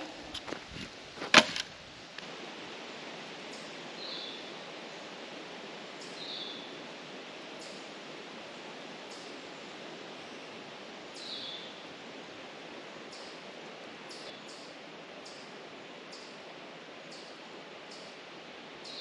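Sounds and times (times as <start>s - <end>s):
handling knocks: 0.0s - 1.7s
outdoor background: 0.0s - 19.0s.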